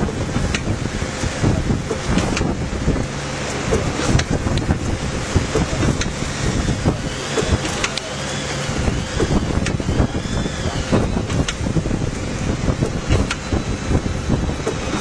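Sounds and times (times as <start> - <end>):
machine clicks and knocks: 0.1 - 2.6, 3.4 - 10.1, 10.8 - 11.7, 12.7 - 13.6
packaging machine running: 3.8 - 13.5.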